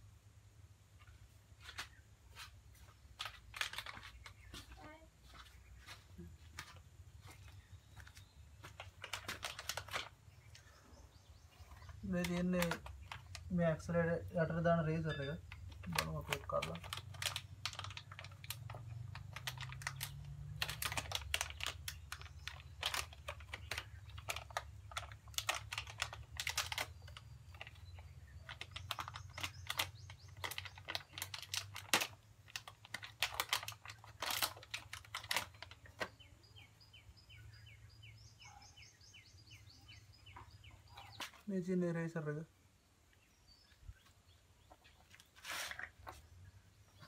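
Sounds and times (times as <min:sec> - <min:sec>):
bird chirping: 0:01.0 - 0:32.7, 0:33.4 - 0:47.0
plastic packaging crinkling: 0:03.1 - 0:04.5, 0:08.6 - 0:10.4, 0:11.8 - 0:13.9, 0:15.0 - 0:36.1.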